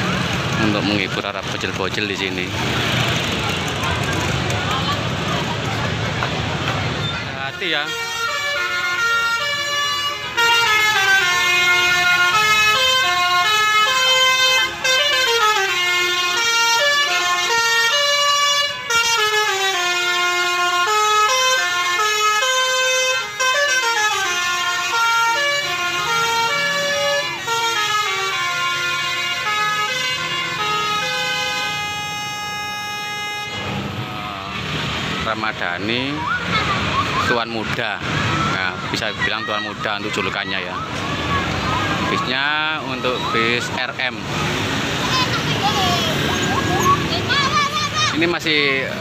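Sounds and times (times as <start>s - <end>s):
multi-tone air horn melody: 7.5s - 34.2s.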